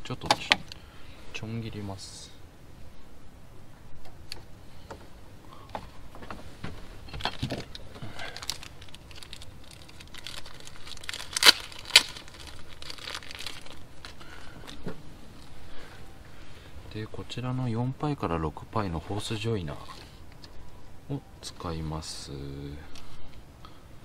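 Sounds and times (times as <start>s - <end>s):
crinkling and rustling: 5.7s - 15.6s.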